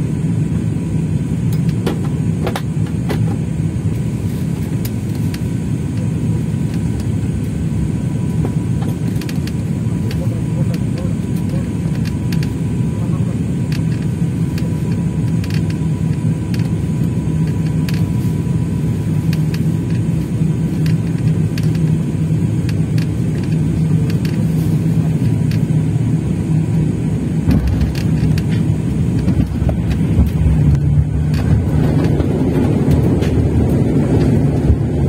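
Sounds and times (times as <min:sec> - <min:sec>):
airliner engine and airflow rumble: 0:00.0 - 0:35.0
deep rumble on runway: 0:00.0 - 0:35.0.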